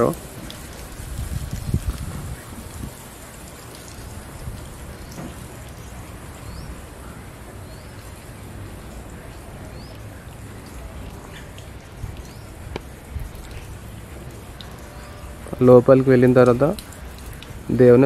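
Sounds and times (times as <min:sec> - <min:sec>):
wind rumble on microphone: 0:00.0 - 0:07.0, 0:11.5 - 0:14.6
bird chirping: 0:05.0 - 0:08.1.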